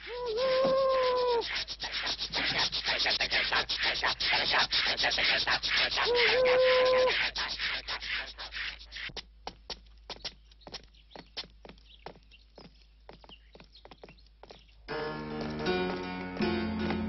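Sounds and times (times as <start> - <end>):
wailing cry: 0.0 - 1.5, 6.0 - 7.2
shuffling feet pattering: 0.0 - 17.0.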